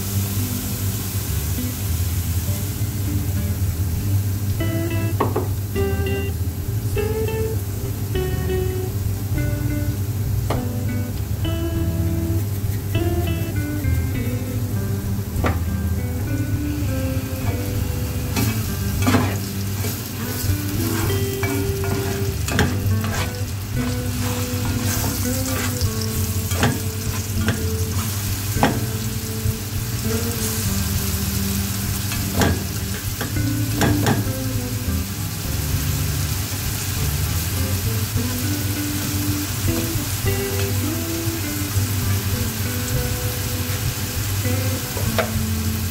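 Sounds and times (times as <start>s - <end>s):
onion sizzling in hot oil: 0.0s - 45.9s
spatula scraping pan: 18.3s - 28.2s
spatula tapping pan: 18.3s - 29.1s.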